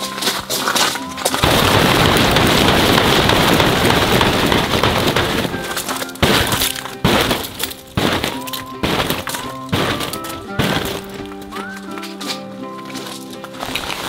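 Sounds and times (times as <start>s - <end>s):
background music: 0.0s - 1.5s, 2.1s - 14.0s
tent fabric rustling: 0.0s - 14.0s
knocks: 1.5s - 11.4s.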